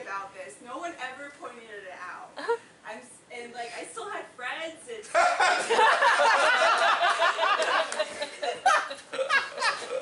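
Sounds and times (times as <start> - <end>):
audience laughing: 5.4 - 10.0.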